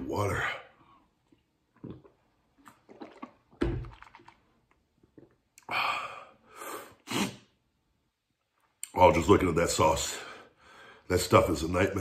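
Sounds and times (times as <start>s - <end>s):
gulping water: 1.4s - 5.5s
plastic bottle crinkling: 2.6s - 5.3s.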